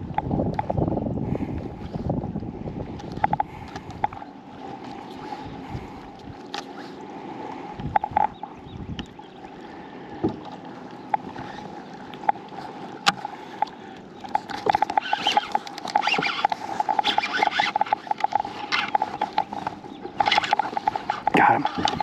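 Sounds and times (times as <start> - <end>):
reel whirring: 1.5 - 22.0
fishing reel ticking: 13.6 - 22.0.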